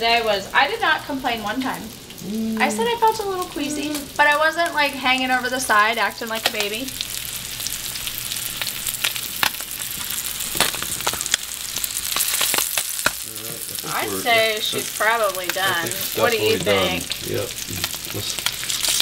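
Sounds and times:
fish sizzling in frying pan: 0:00.0 - 0:02.2, 0:02.8 - 0:19.0
person speaking: 0:02.2 - 0:04.2, 0:13.3 - 0:18.4.

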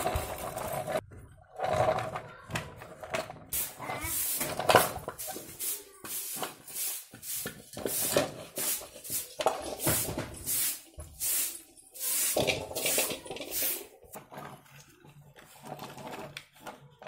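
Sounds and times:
plastic toys scraping on concrete: 0:00.0 - 0:17.0
steel bowl clattering: 0:07.6 - 0:14.2.

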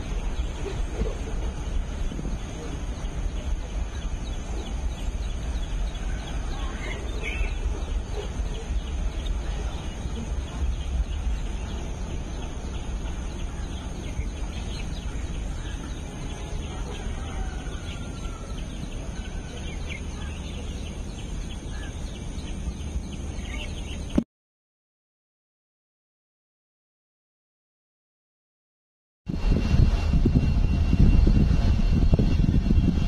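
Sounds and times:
birds chirping: 0:00.0 - 0:24.2
low outdoor rumble: 0:00.0 - 0:24.2, 0:29.3 - 0:33.0.

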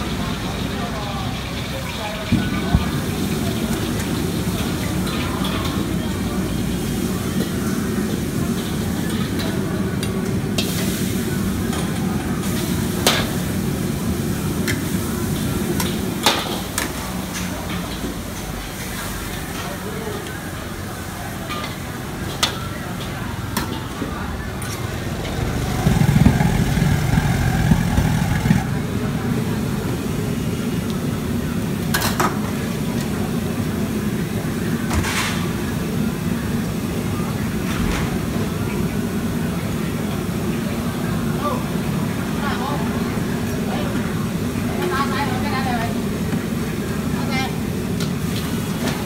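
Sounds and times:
food sizzling in a wok: 0:00.0 - 0:37.6
gas burner flame rushing: 0:02.4 - 0:18.4, 0:22.2 - 0:35.9.

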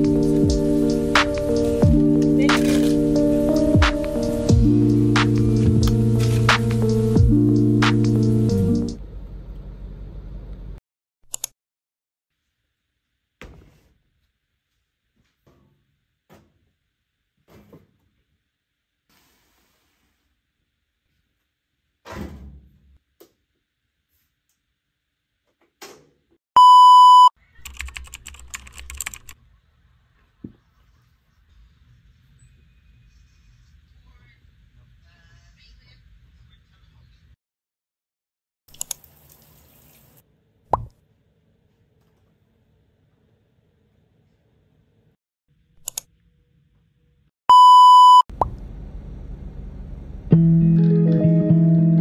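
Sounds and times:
background music: 0:00.0 - 0:09.0, 0:50.4 - 0:52.0
book pages rustling: 0:02.5 - 0:03.0
washing machine beep: 0:26.6 - 0:27.3, 0:47.5 - 0:48.3.

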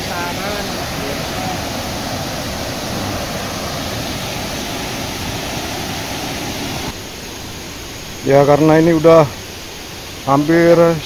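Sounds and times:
steady rushing noise: 0:00.0 - 0:11.0.

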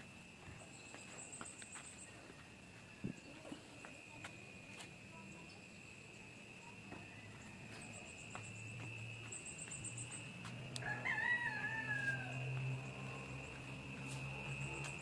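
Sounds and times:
steady high-pitched whine: 0:00.0 - 0:15.0
faint high ticks: 0:09.7 - 0:10.9.

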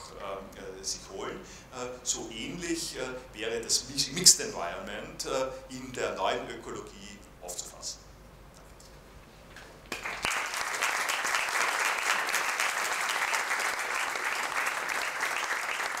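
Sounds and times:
audience applause: 0:09.9 - 0:16.0.

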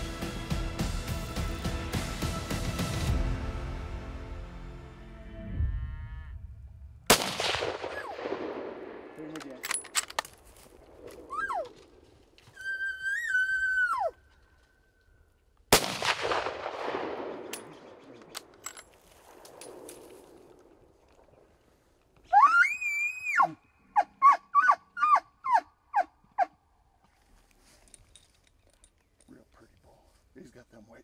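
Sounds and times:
rifle shot echoing: 0:07.1 - 0:09.9, 0:15.7 - 0:18.6.

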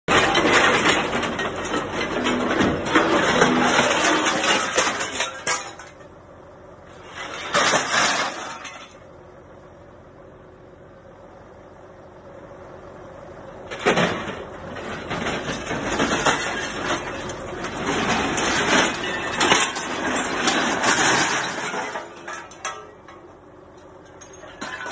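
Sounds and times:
loud metal clanging: 0:00.1 - 0:06.1, 0:13.8 - 0:23.3
scrap metal clattering and scraping: 0:00.1 - 0:09.2, 0:13.6 - 0:24.9.

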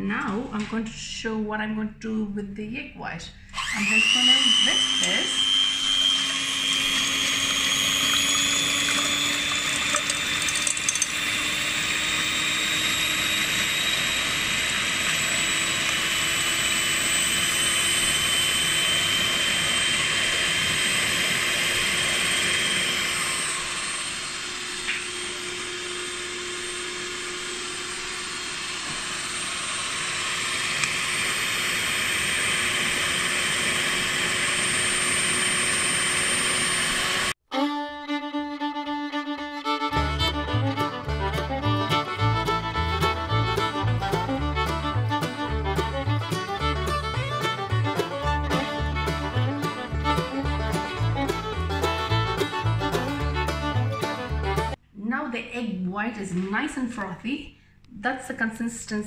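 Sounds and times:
electric hand mixer running: 0:03.5 - 0:37.4.

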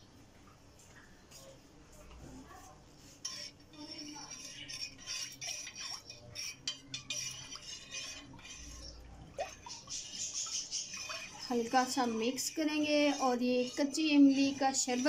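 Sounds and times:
liquid sloshing in pot: 0:02.3 - 0:15.0
spoon clinking against metal pot: 0:03.3 - 0:15.0.

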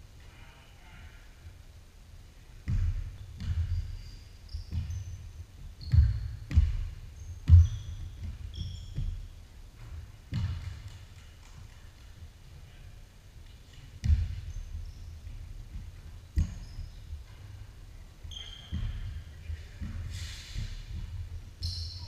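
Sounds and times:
basketball bouncing on hardwood floor: 0:02.6 - 0:11.8, 0:13.7 - 0:22.0
sneaker squeaks: 0:02.7 - 0:11.0, 0:13.5 - 0:22.0.

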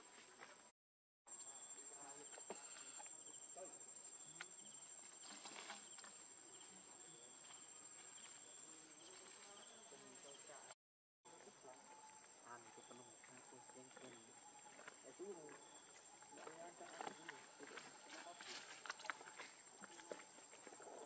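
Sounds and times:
high-pitched insect trill: 0:01.3 - 0:10.8.

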